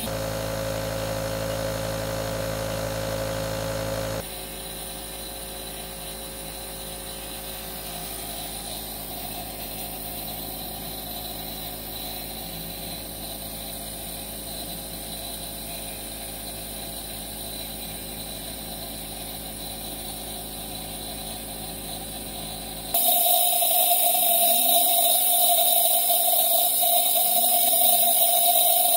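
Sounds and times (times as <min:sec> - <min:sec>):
small pump motor humming: 0:00.0 - 0:28.9.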